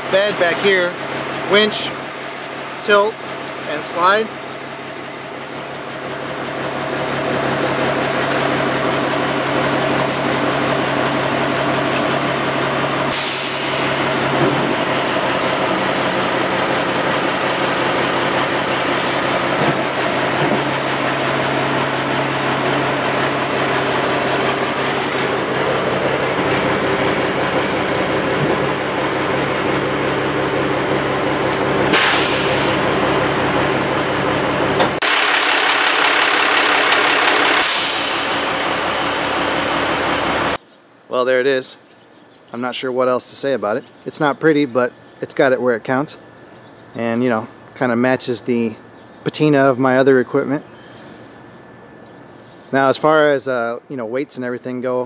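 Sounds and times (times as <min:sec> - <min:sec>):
diesel truck engine running: 0:00.0 - 0:40.6.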